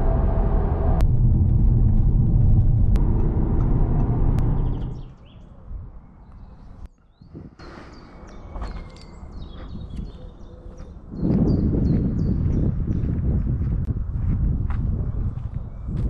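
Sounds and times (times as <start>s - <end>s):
car engine and road noise: 0.0s - 6.9s.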